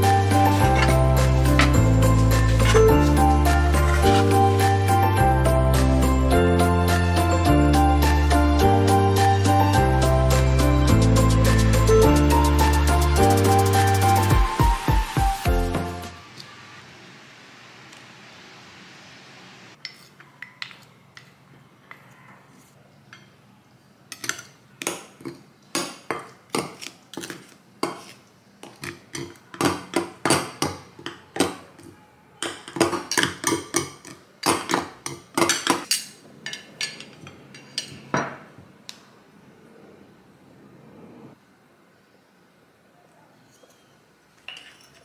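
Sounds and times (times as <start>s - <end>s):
knives scraping and clinking in bowl: 0.5s - 4.5s, 44.5s - 45.0s.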